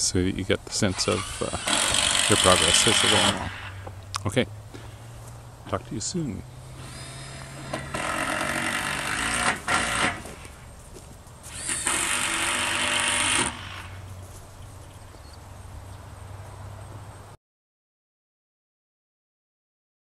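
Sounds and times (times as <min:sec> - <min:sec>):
power tool running: 0:00.8 - 0:04.0, 0:06.6 - 0:10.7, 0:11.5 - 0:14.1.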